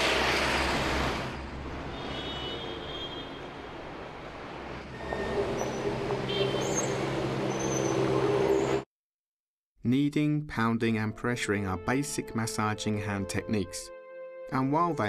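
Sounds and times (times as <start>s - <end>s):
traffic noise rumble: 0.0s - 8.8s.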